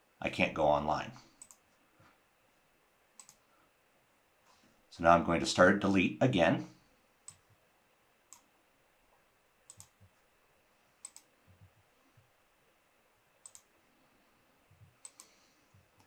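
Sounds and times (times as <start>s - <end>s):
faint computer mouse clicks: 1.4s - 1.6s, 3.2s - 3.4s, 8.3s - 8.5s, 9.7s - 10.1s, 11.0s - 11.7s, 13.4s - 13.7s, 15.0s - 15.4s.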